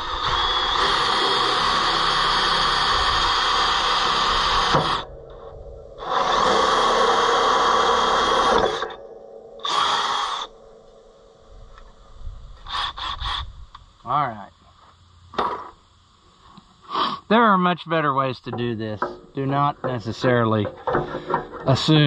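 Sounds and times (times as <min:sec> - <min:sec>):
cordless drill boring wood: 0:00.0 - 0:05.1, 0:06.0 - 0:09.0, 0:09.6 - 0:10.5, 0:12.6 - 0:13.5.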